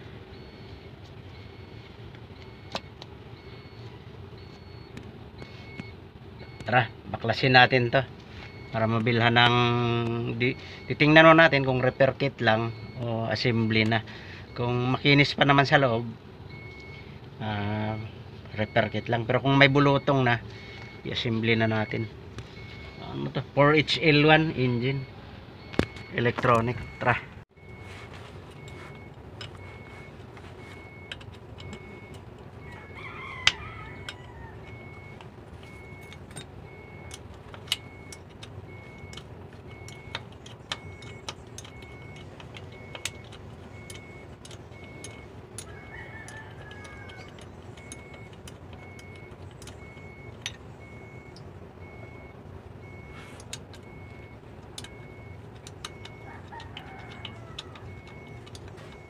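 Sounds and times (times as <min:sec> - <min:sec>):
rooster crowing: 0:32.6 - 0:35.2, 0:45.6 - 0:47.6, 0:56.1 - 0:59.0
wrench clinking against metal: 0:35.6 - 0:50.6, 0:55.6 - 0:58.8.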